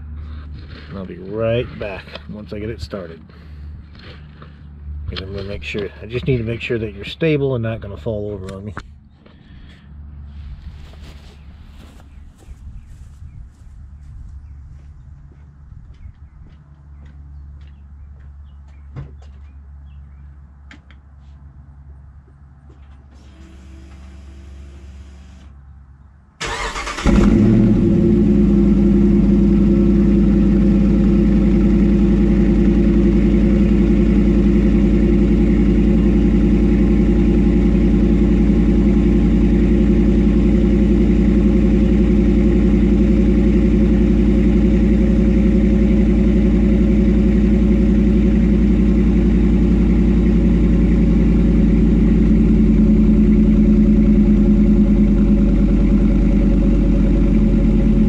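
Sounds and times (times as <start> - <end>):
starter motor cranking: 26.4 - 27.4
car engine idling: 26.4 - 58.0.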